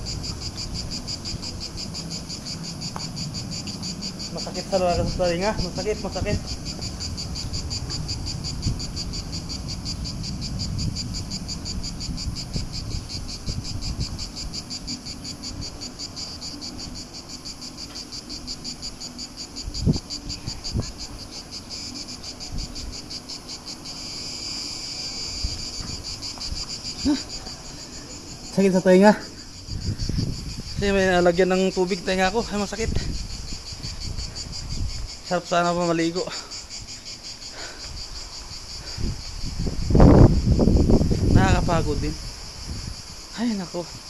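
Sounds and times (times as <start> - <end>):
cicadas chorus: 0.0 - 44.0.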